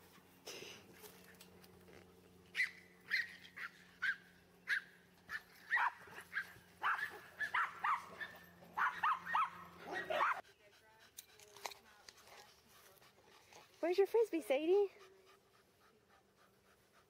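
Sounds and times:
small dog yapping: 2.5 - 10.4.

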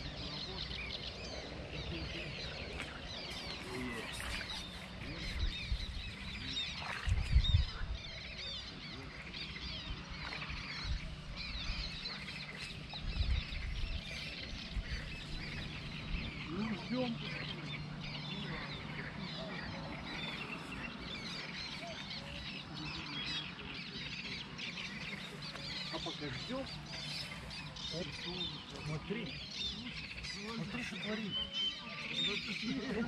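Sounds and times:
low rumbles on microphone: 0.0 - 25.9
small birds chirping and trilling: 0.0 - 33.0.

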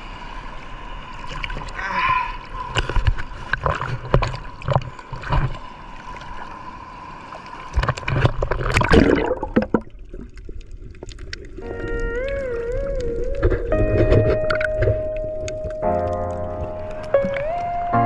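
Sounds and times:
seawater splashing and sloshing: 1.1 - 18.0
muffled underwater rumble: 7.7 - 18.0.

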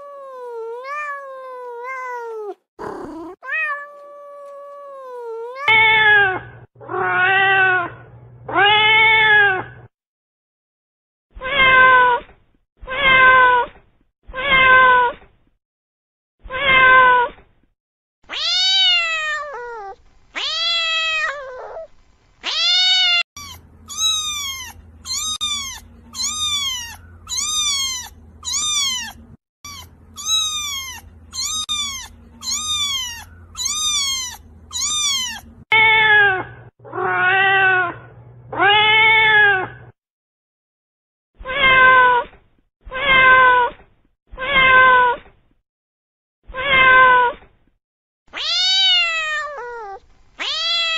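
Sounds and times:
cats meowing: 0.0 - 9.7, 18.3 - 39.8, 41.4 - 42.3, 46.5 - 47.4, 48.4 - 50.9
faint low hum: 21.3 - 35.7.

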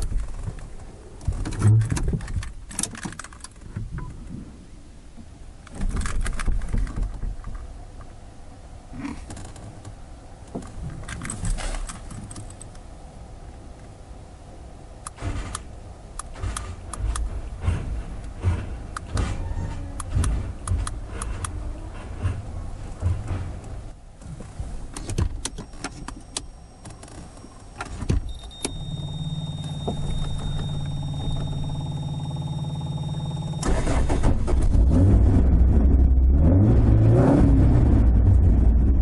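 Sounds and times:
objects clicking and rattling in car: 0.0 - 4.4, 5.6 - 8.2, 9.0 - 12.9, 15.0 - 35.0.

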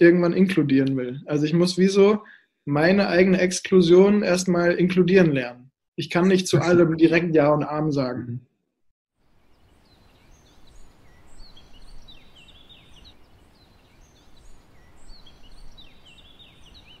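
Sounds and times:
birds chirping and whistling: 9.9 - 17.0.

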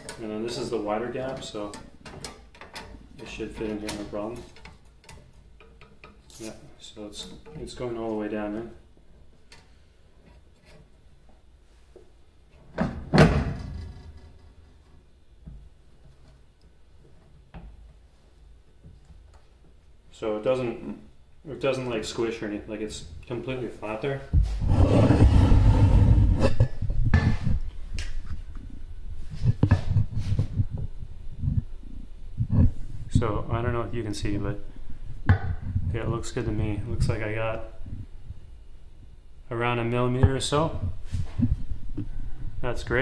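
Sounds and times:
low handling rumble: 24.4 - 38.4.

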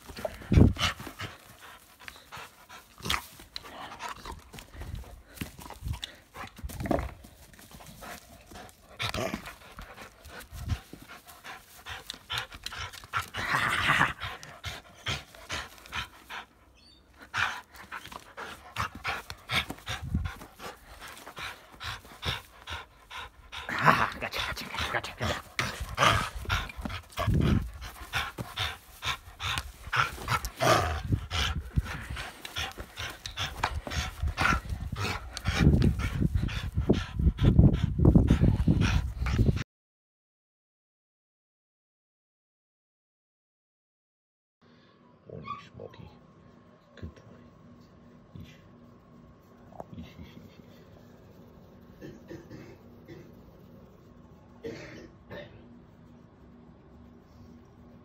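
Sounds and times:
dog panting: 0.0 - 39.6.

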